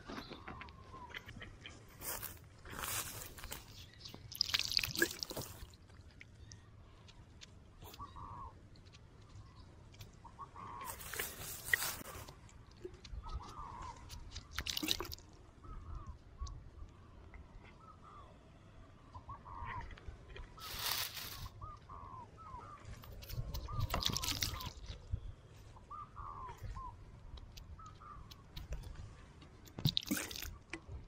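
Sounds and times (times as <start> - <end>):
bird calling: 0.0 - 5.7, 7.8 - 8.6, 9.3 - 12.3, 12.9 - 29.3
hand rustling through dry soil: 1.6 - 6.0, 10.6 - 12.5, 20.4 - 24.8.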